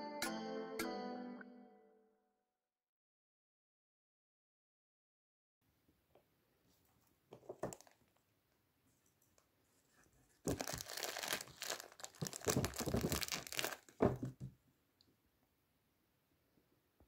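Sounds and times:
tea packets crinkling and rustling: 7.4 - 8.2, 10.4 - 14.4.

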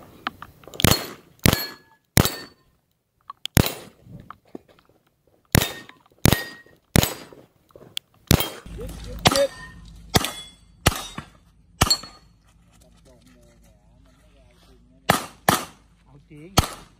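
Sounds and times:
struck steel ringing: 0.8 - 2.6, 8.4 - 12.4.

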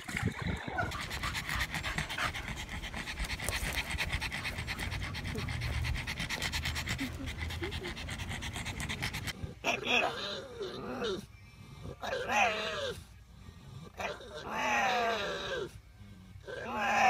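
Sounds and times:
dog panting: 0.0 - 9.6.

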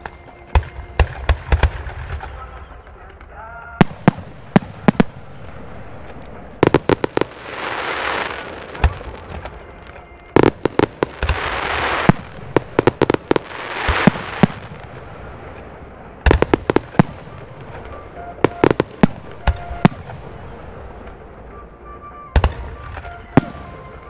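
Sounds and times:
crackling firework hiss: 0.0 - 21.1
firework shells bursting: 3.2 - 21.2.

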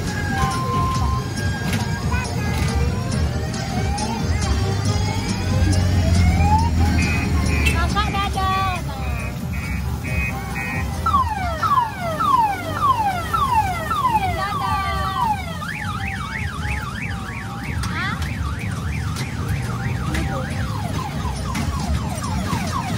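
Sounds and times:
electronic siren wail: 3.5 - 7.6, 9.6 - 22.9.

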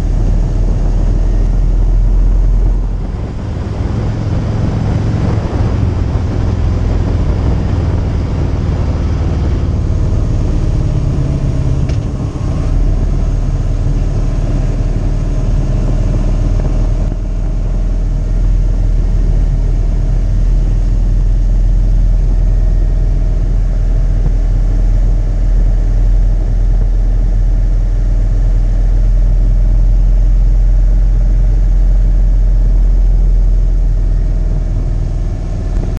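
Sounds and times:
motorcycle engine: 0.0 - 27.2
low wind rumble: 0.0 - 35.9.

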